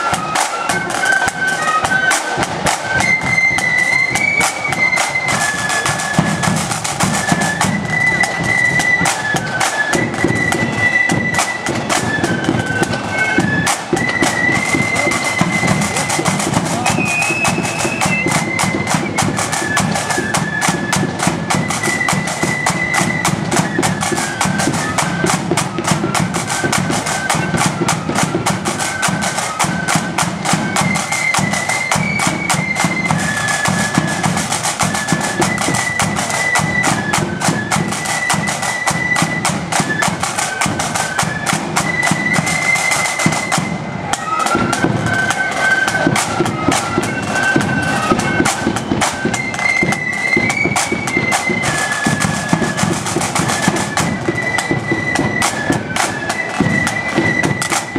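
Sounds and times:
flutes playing melody: 0:00.0 - 0:57.9
rapid snare drum beating: 0:00.0 - 0:57.9.

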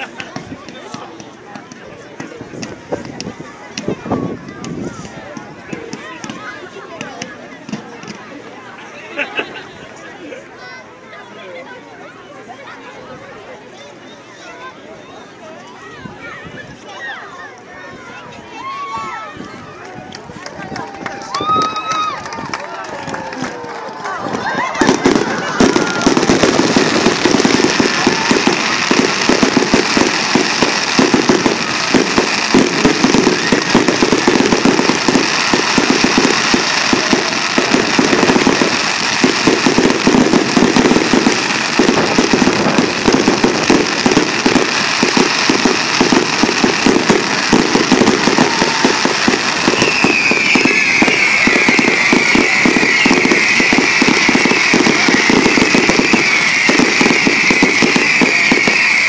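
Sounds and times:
fireworks bangs and crackling: 0:00.0 - 0:08.4, 0:19.0 - 0:59.0
high falling whistling tone: 0:49.6 - 0:59.0.

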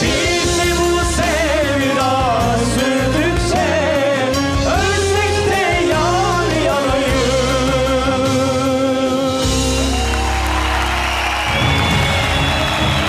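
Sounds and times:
man singing with vibrato: 0:00.0 - 0:09.8
pop ballad with band: 0:00.0 - 0:13.0.

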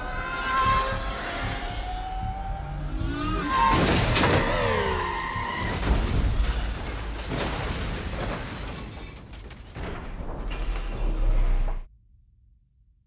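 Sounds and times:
film score music: 0:00.0 - 0:07.2.

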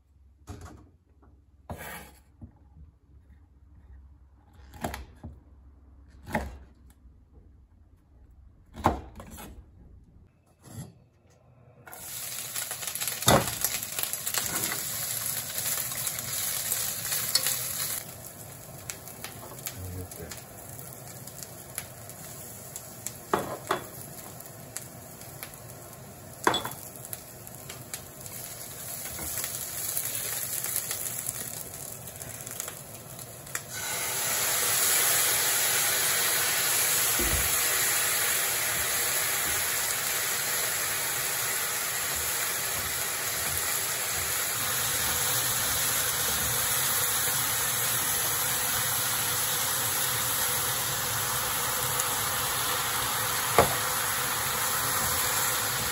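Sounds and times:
food sizzling in a pan: 0:11.9 - 0:55.9.

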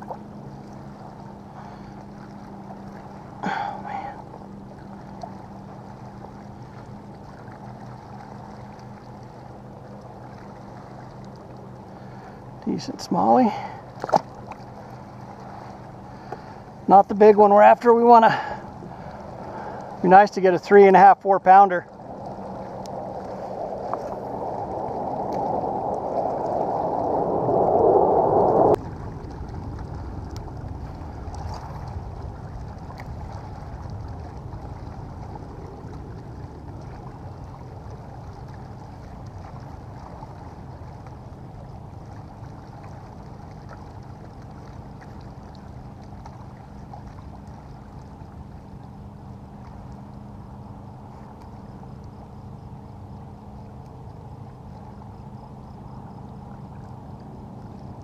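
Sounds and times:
faint steady hum: 0:00.0 - 0:58.0
water washing against plastic hull: 0:02.8 - 0:27.1.

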